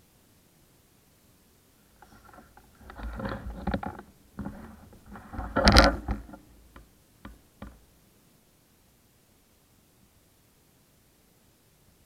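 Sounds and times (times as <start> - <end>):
camera handling noise: 2.0 - 6.8.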